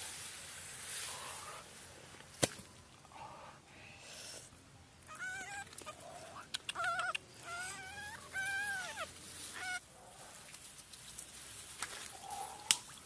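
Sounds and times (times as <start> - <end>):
high-pitched animal calls: 5.1 - 9.8.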